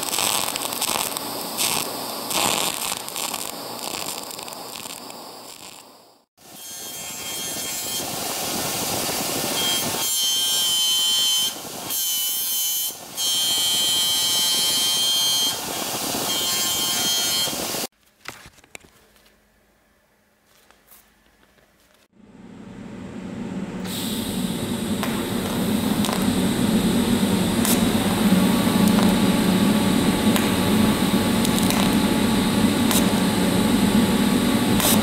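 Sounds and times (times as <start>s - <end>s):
faint hum: 19.2s - 35.0s.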